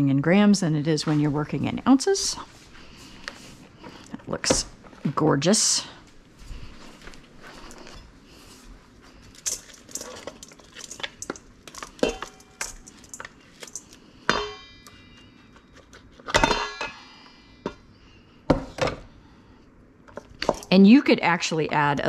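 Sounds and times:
kitchenware clinking and tapping: 9.5s - 14.6s
ringing clanks: 12.0s - 15.4s.

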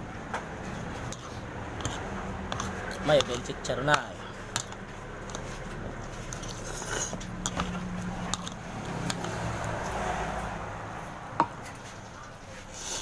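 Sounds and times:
cutlery scraping a bowl: 0.8s - 10.0s.

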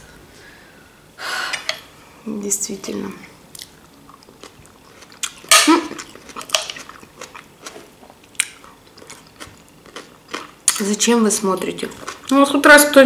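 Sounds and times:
person chewing crunchy vegetables: 3.5s - 10.8s, 11.8s - 12.4s.

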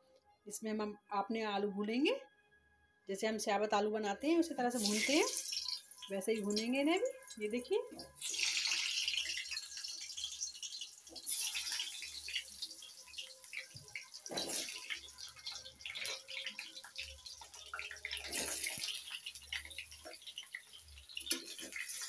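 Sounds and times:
potatoes sizzling in hot oil: 4.7s - 22.0s.

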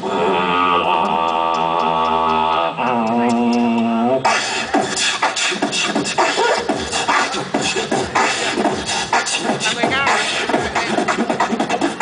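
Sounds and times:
humming vocal tone: 0.0s - 4.2s
beatboxing vocal percussion: 0.0s - 12.0s.

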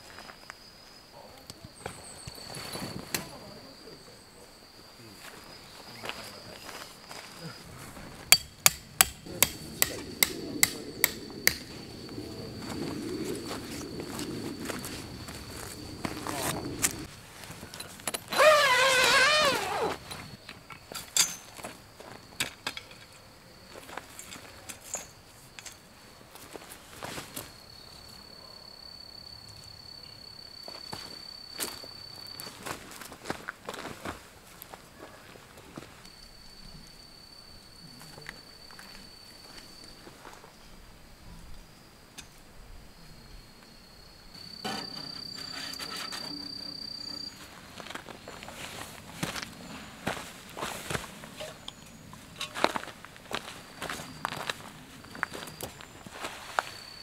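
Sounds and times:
high-pitched insect trill: 0.0s - 33.9s, 35.5s - 57.0s
hammer striking tent stake: 8.3s - 11.6s.

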